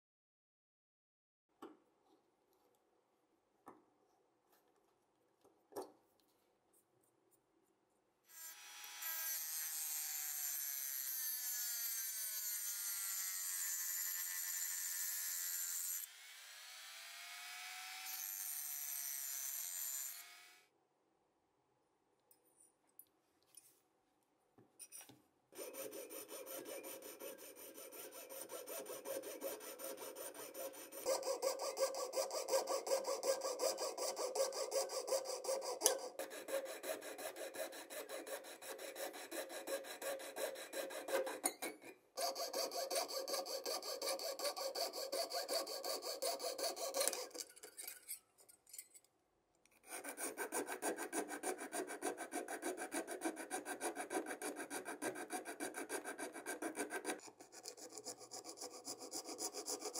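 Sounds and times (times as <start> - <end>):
file rasping on metal: 8.3 - 16.1, 18.1 - 20.2, 25.6 - 48.2, 49.8 - 59.9
saw cutting metal: 8.3 - 20.6, 25.6 - 48.2, 49.8 - 59.9.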